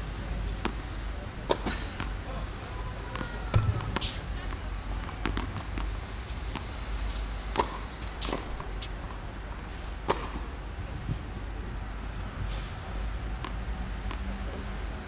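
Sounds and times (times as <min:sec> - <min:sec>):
tennis ball knocks: 0:03.1 - 0:05.9, 0:07.5 - 0:08.7, 0:10.0 - 0:10.5.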